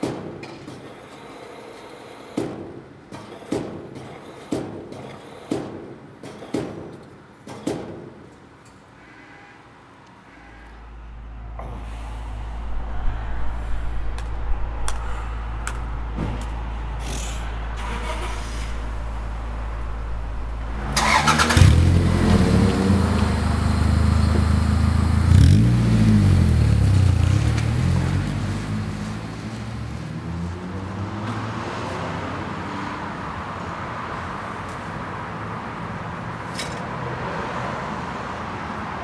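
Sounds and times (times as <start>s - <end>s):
steady low hum: 10.3s - 25.3s
car engine starting and revving: 10.6s - 32.6s.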